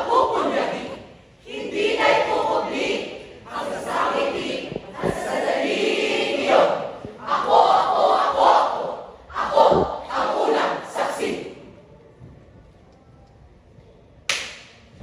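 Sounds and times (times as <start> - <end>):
choir shouting in unison: 0.0 - 11.6.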